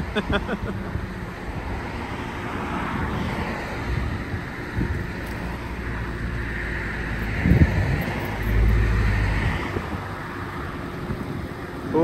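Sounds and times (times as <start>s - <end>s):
steady outdoor hiss: 0.0s - 12.0s
wind buffeting microphone: 2.8s - 6.1s, 7.0s - 11.9s.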